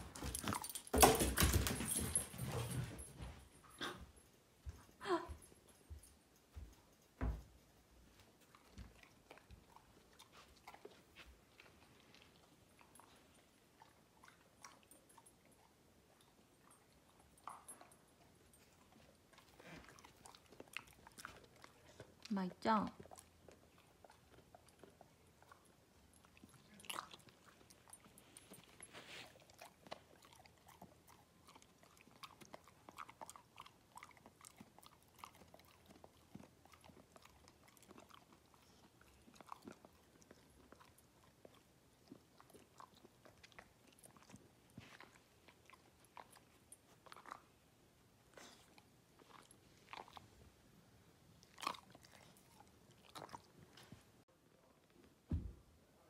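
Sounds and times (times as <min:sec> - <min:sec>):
dog crunching a treat: 0:23.0 - 0:47.5, 0:48.4 - 0:50.4, 0:51.4 - 0:53.9.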